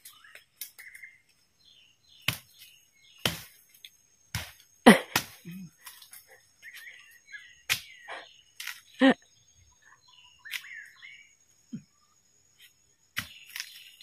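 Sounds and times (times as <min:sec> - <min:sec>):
faint bird chirps: 0:00.0 - 0:04.0, 0:05.1 - 0:14.0
tool chopping into ground: 0:02.2 - 0:03.6, 0:04.3 - 0:05.5, 0:07.7 - 0:08.0, 0:13.2 - 0:14.0.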